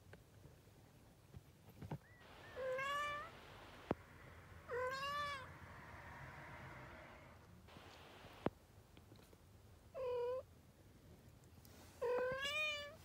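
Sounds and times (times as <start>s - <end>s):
kitten mewing: 2.5s - 4.0s, 4.7s - 5.6s.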